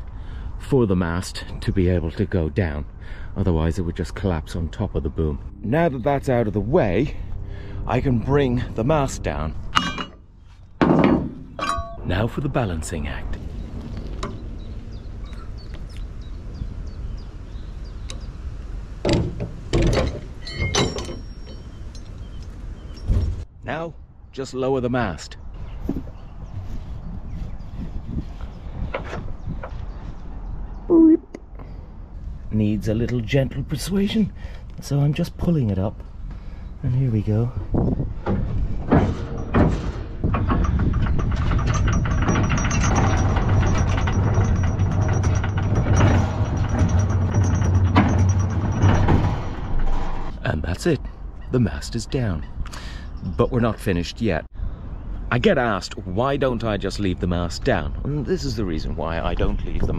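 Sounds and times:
steady low hum: 0.0 - 24.2
rigging knocking and clanking: 5.8 - 23.5, 25.8 - 30.5, 37.3 - 50.4
rigging squeal: 20.0 - 23.4, 37.4 - 50.5.

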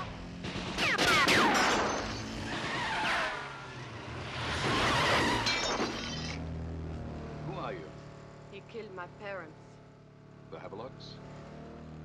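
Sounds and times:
small car engine running hard: 0.0 - 12.0
glass breaking: 5.1 - 6.4.

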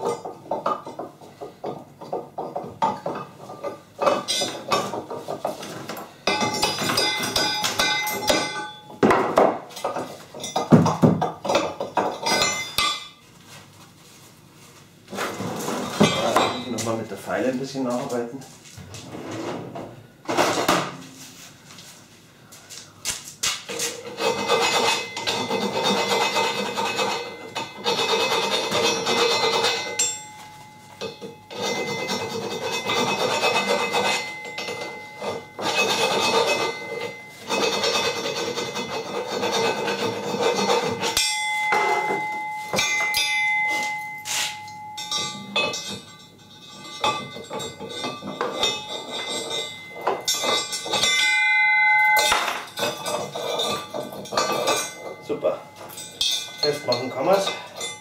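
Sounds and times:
metal clinks and taps: 0.0 - 13.2, 26.9 - 37.7, 40.4 - 58.0
file scraping steel: 23.8 - 30.2, 31.1 - 41.3, 45.2 - 51.3, 52.2 - 58.0.

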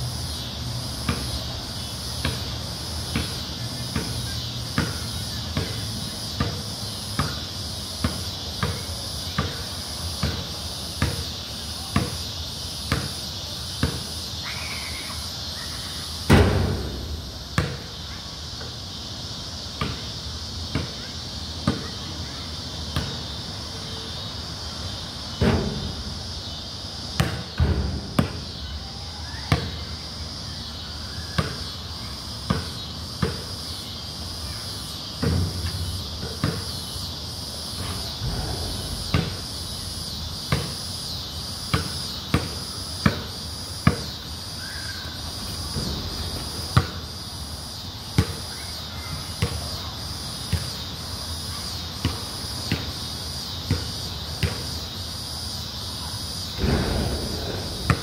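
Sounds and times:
high drone of insects: 0.0 - 58.0
basketball bouncing on concrete: 3.1 - 3.4, 4.0 - 4.2, 4.8 - 11.3, 12.0 - 12.2, 12.9 - 13.2, 13.8 - 14.0, 16.3 - 18.1, 19.8 - 20.1, 27.2 - 28.5, 32.5 - 33.4, 35.2 - 36.8, 39.0 - 39.8, 40.5 - 40.8, 41.7 - 44.2, 45.8 - 47.0, 56.6 - 58.0.

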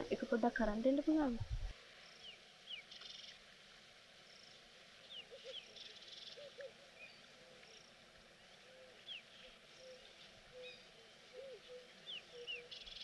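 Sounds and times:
faint birds chirping: 0.0 - 13.0
soft low double bird calls: 4.4 - 13.0.

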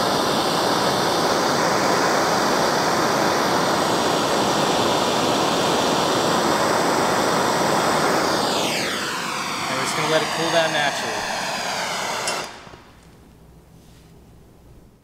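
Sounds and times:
gas torch hissing: 0.0 - 13.1.

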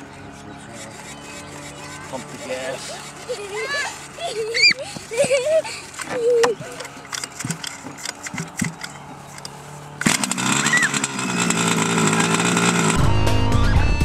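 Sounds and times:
two-stroke engine running: 0.0 - 13.3
music with heavy bass: 13.0 - 14.0.

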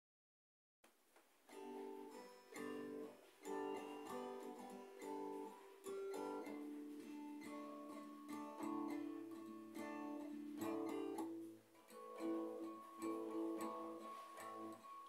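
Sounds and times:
acoustic guitar chords: 1.5 - 15.0.

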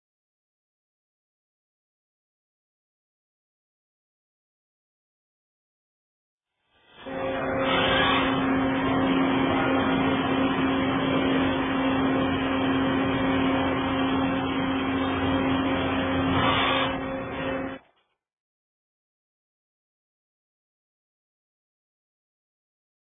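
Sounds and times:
lathe running: 6.9 - 17.8.

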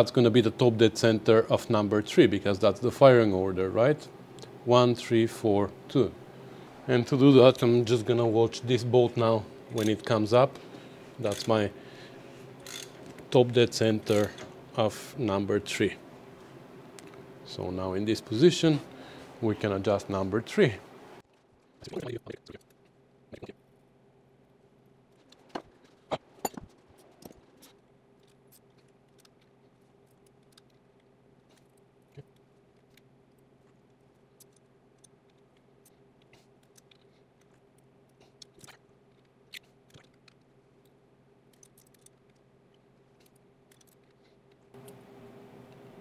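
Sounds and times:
faint steady hum: 0.0 - 46.0
metallic clicks of hand tools: 12.6 - 13.0.

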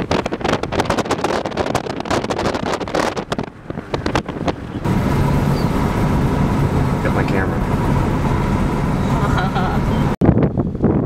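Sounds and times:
wind buffeting microphone: 0.0 - 11.0
low rumble with hum: 3.2 - 11.0.

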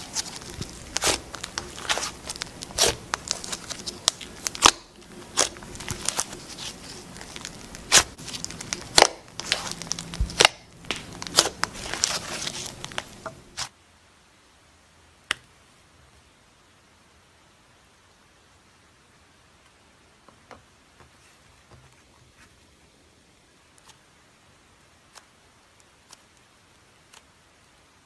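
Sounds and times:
slime squeezed and stretched by hand: 0.0 - 13.7.

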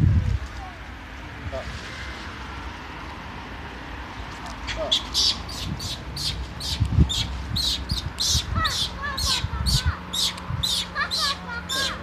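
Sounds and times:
birds chirping: 4.6 - 12.0.

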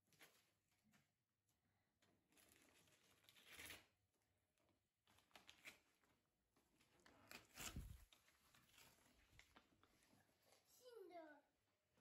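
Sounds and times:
paper wrapping crinkling: 2.3 - 3.9, 5.0 - 10.1.

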